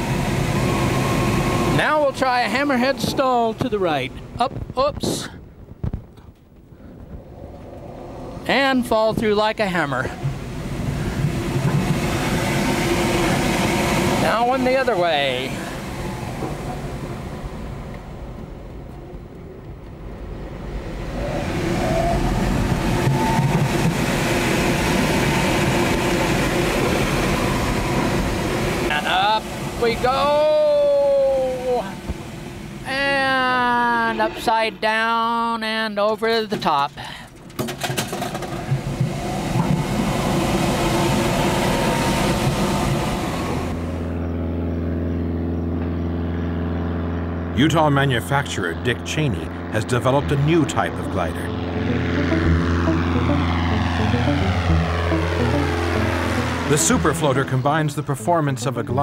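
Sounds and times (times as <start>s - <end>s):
steady low engine drone: 0.0s - 35.8s, 36.6s - 59.0s
air rushing over glider: 2.6s - 35.1s, 38.3s - 45.5s.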